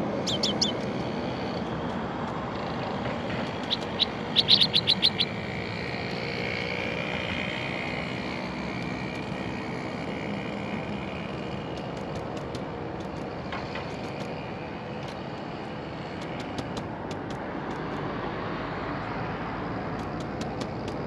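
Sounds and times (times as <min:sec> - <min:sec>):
distant engine drone: 0:00.0 - 0:21.0
bird chirps: 0:00.2 - 0:00.8, 0:03.6 - 0:05.4.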